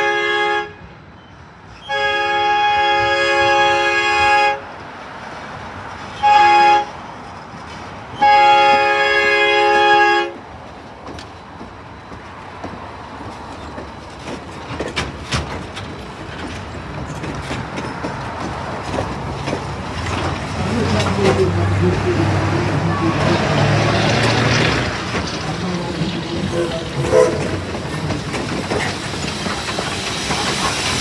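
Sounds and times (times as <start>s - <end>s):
train cars rumbling past: 0.0s - 31.0s
wheels clicking over rail joints: 7.4s - 31.0s
steam locomotive chime whistle: 26.5s - 27.5s.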